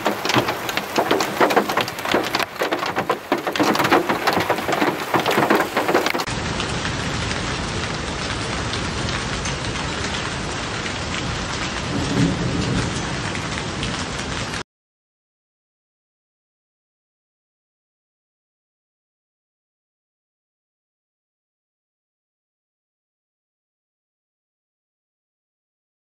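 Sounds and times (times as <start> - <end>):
hailstones striking hard surfaces: 0.0 - 6.3
hail and rain downpour hissing: 0.0 - 14.6.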